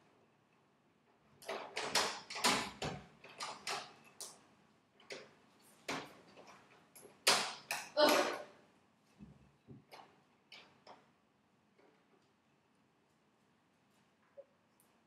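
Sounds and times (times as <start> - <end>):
door lock clicks and scrapes: 1.4 - 4.0.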